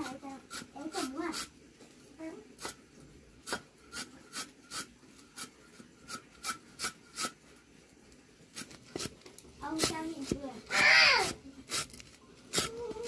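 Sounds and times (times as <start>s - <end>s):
short rasping scrapes: 3.4s - 7.4s.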